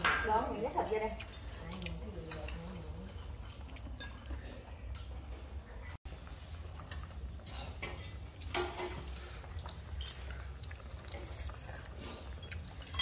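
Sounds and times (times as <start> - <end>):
utensils clicking on bowls: 0.0 - 5.2, 12.4 - 13.0.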